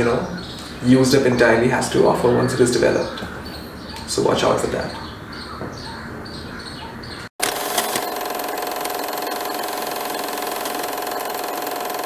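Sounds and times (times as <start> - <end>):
film projector running: 7.4 - 12.0.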